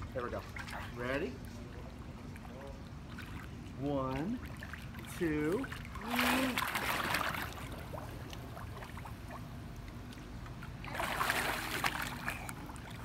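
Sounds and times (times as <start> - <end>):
pool water splashing: 0.0 - 13.0.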